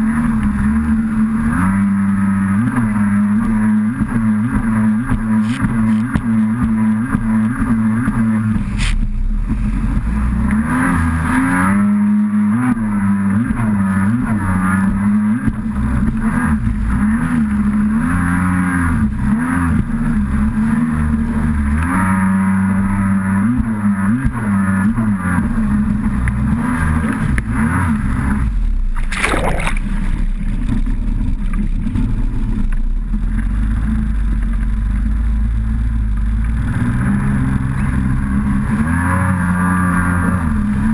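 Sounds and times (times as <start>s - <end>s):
jet ski engine revving: 0.0s - 40.9s
water rushing: 28.9s - 32.0s.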